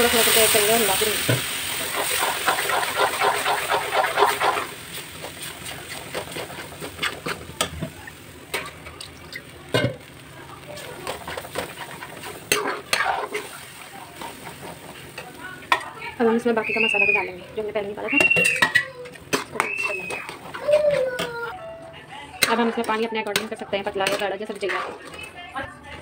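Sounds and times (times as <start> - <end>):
water sizzling in hot pan: 0.0 - 21.5
steel spoon scraping pan: 1.8 - 7.4, 10.8 - 15.9, 18.2 - 21.3.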